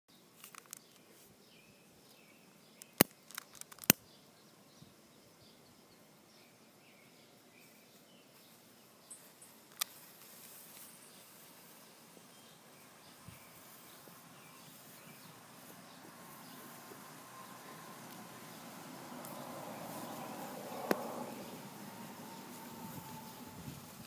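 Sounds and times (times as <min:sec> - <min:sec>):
sharp clicks: 0:02.8 - 0:04.0, 0:09.7 - 0:10.0
soft ticks: 0:18.0 - 0:18.2.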